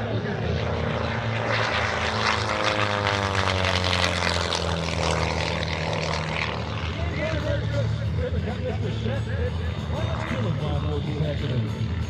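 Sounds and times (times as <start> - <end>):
biplane engine and propeller passing: 0.0 - 12.0.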